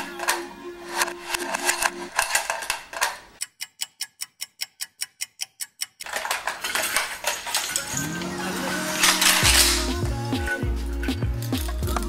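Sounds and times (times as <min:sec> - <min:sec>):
background music: 0:00.0 - 0:02.7, 0:07.2 - 0:12.0
clock ticking: 0:01.0 - 0:06.4.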